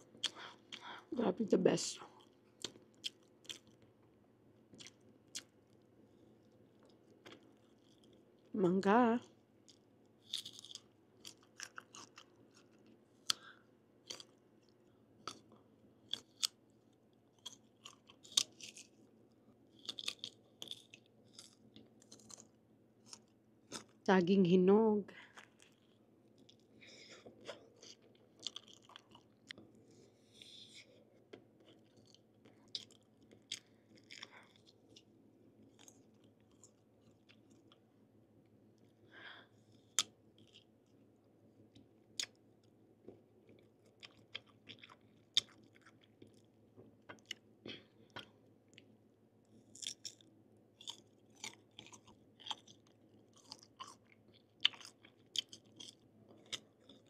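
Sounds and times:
crisp chewing crunches: 0:00.0 - 0:01.0, 0:02.2 - 0:03.9, 0:04.7 - 0:08.5, 0:09.2 - 0:19.1, 0:19.7 - 0:24.1, 0:25.2 - 0:29.6, 0:30.3 - 0:37.8, 0:39.7 - 0:41.0, 0:43.4 - 0:47.4, 0:49.6 - 0:57.0.

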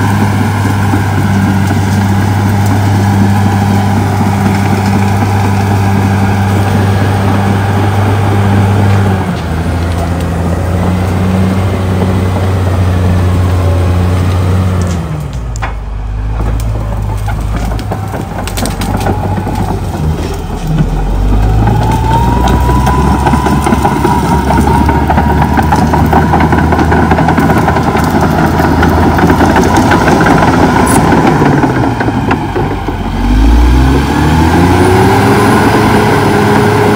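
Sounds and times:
bulldozer diesel engine: 0:00.0 - 0:36.9
brush cracking: 0:00.1 - 0:33.5.

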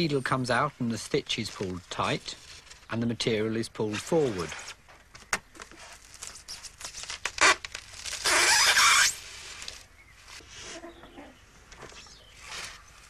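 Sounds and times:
polystyrene cracking and snapping: 0:04.4 - 0:09.9
needle grating through foam: 0:05.8 - 0:10.8.

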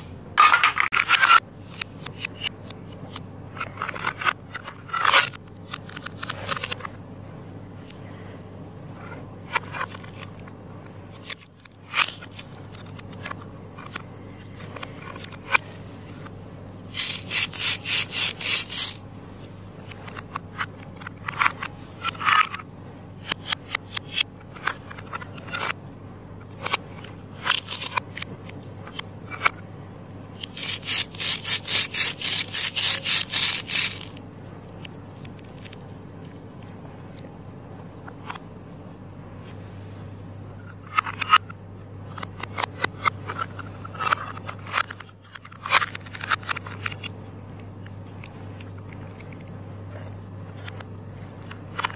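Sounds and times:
plastic pieces clicking and knocking: 0:16.9 - 0:19.0, 0:27.4 - 0:29.6, 0:30.4 - 0:34.2
toy knife rasping through plastic: 0:16.9 - 0:19.0, 0:30.4 - 0:34.2.

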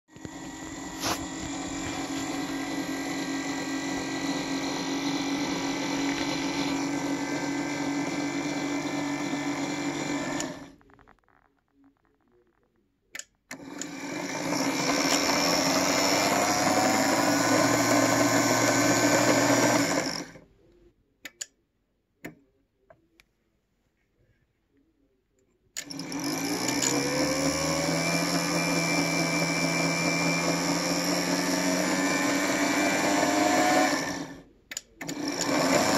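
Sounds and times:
model locomotive motor whirring: 0:00.1 - 0:10.8, 0:13.5 - 0:20.4, 0:25.8 - 0:35.9.

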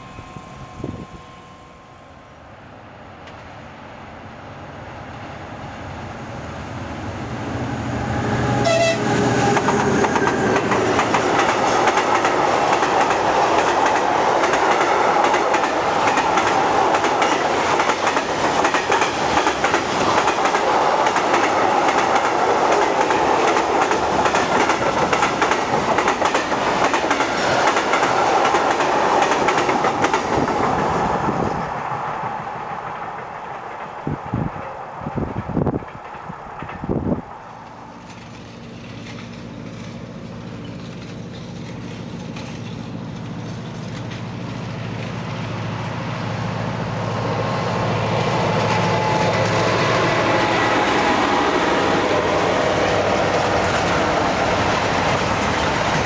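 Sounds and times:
diesel locomotive engine rumble: 0:00.0 - 0:56.0
train wheels clacking over rail joints: 0:08.7 - 0:31.4, 0:32.7 - 0:45.3, 0:52.8 - 0:56.0.

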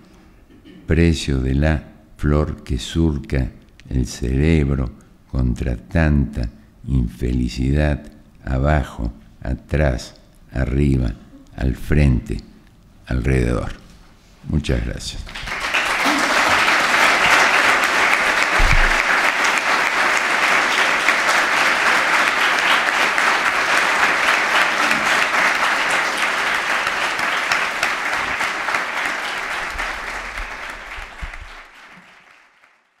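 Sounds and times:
audience applauding: 0:15.3 - 0:33.0.

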